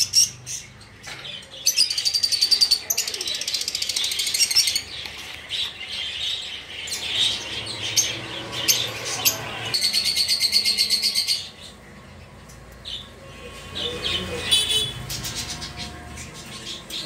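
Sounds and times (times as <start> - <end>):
parrots chirping and chattering: 0.0 - 17.0.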